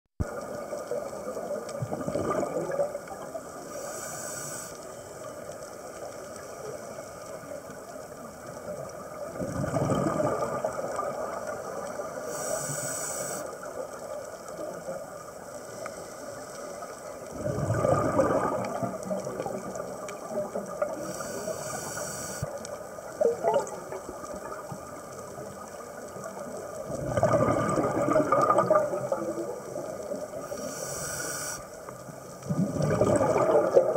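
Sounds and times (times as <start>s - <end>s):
regulator air hiss: 3.6s - 5.1s, 12.1s - 13.7s, 21.0s - 22.6s, 30.4s - 31.9s
exhaust bubbles rushing: 9.5s - 11.0s, 17.4s - 19.0s, 26.9s - 29.3s, 32.5s - 33.9s.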